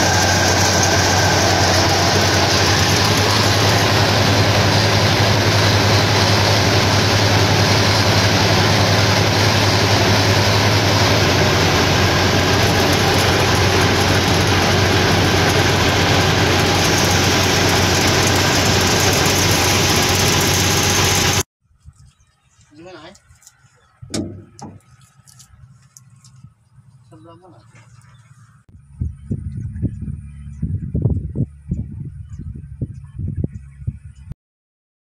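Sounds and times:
tractor engine running loudly: 0:00.0 - 0:21.5.

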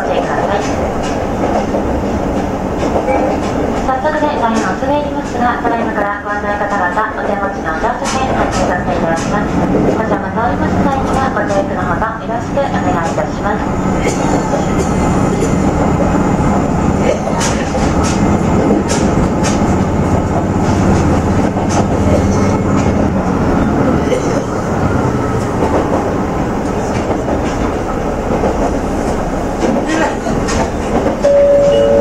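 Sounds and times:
diesel railcar engine drone: 0:00.0 - 0:32.0
two-note tone: 0:31.2 - 0:32.0.

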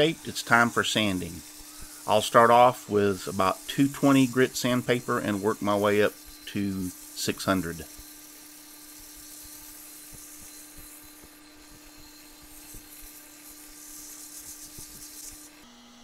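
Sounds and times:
steady low hum: 0:00.0 - 0:15.2
sandpaper hissing on spinning wood: 0:00.0 - 0:15.6.

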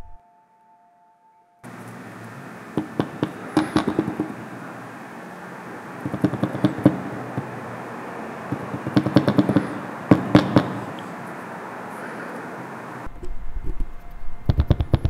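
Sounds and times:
steady background hiss: 0:00.0 - 0:15.0
sharp crackling pops: 0:01.7 - 0:04.7, 0:06.0 - 0:07.9, 0:08.5 - 0:11.2, 0:14.5 - 0:15.0.

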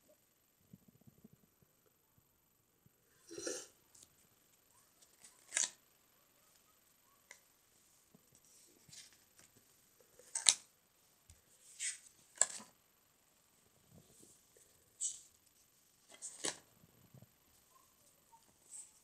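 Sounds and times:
paper pages turning: 0:05.0 - 0:05.8, 0:08.4 - 0:09.6, 0:10.2 - 0:10.7, 0:11.6 - 0:12.7, 0:16.1 - 0:16.7.

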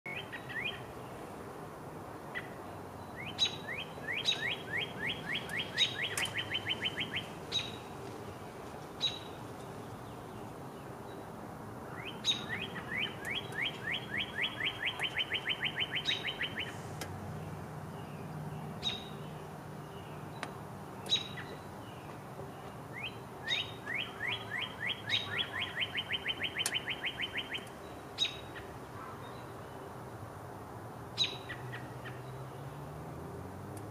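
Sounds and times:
songbird trilling: 0:00.1 - 0:00.9, 0:02.4 - 0:07.9, 0:09.0 - 0:10.5, 0:11.9 - 0:16.8, 0:17.4 - 0:29.5, 0:31.2 - 0:32.4.

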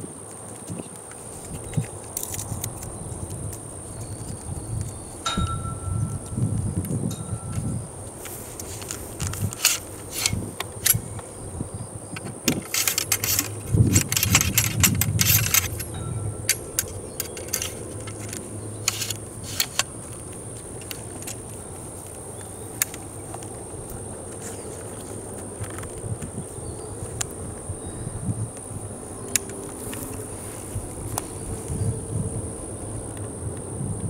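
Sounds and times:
rifle metallic clinks and rattles: 0:01.4 - 0:02.9, 0:04.9 - 0:06.4, 0:07.1 - 0:11.3, 0:12.2 - 0:23.6.

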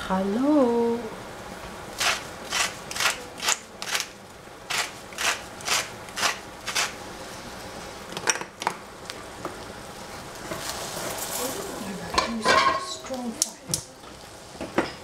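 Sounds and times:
spice grinder strokes: 0:02.0 - 0:04.1, 0:04.7 - 0:07.0.

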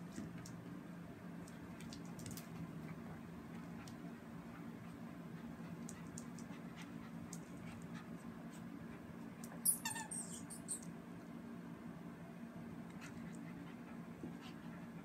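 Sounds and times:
brief squeaky sounds: 0:09.6 - 0:10.8
puppy yelp: 0:09.6 - 0:10.8.

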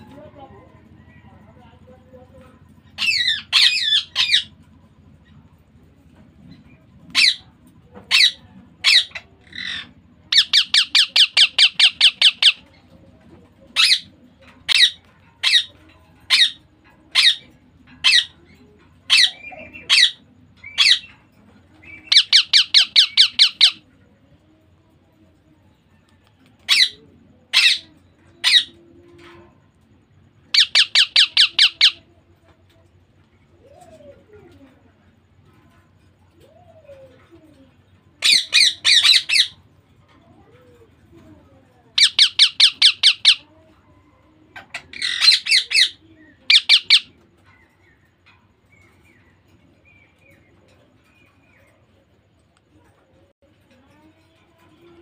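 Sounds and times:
parrot squawking: 0:02.9 - 0:04.5, 0:07.1 - 0:07.4, 0:08.1 - 0:12.6, 0:13.8 - 0:14.1, 0:14.7 - 0:15.7, 0:16.3 - 0:18.4, 0:19.1 - 0:21.1, 0:22.0 - 0:23.8, 0:26.7 - 0:28.8, 0:30.5 - 0:32.1, 0:38.2 - 0:39.6, 0:42.0 - 0:43.4, 0:44.7 - 0:47.2
parakeet chick begging calls: 0:03.0 - 0:04.5, 0:07.1 - 0:07.4, 0:08.1 - 0:12.6, 0:13.8 - 0:15.7, 0:21.8 - 0:23.8, 0:26.7 - 0:28.8, 0:30.5 - 0:32.1, 0:38.2 - 0:39.6, 0:42.0 - 0:43.5, 0:44.8 - 0:47.2.

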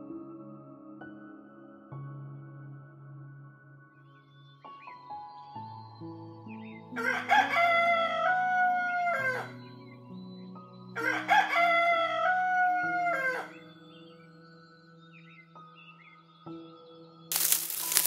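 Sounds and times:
soft background music: 0:00.0 - 0:18.0
rooster crowing: 0:07.0 - 0:09.5, 0:11.0 - 0:13.6.

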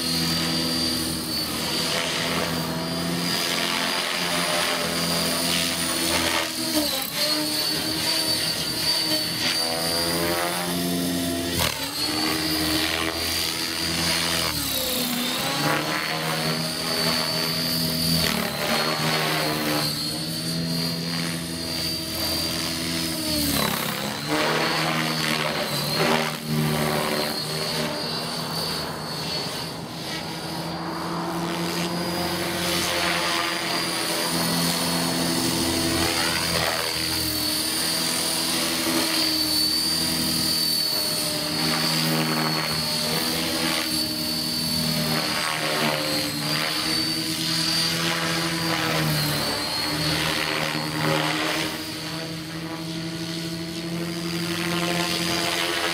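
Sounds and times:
model helicopter motor whine: 0:00.0 - 0:55.9.

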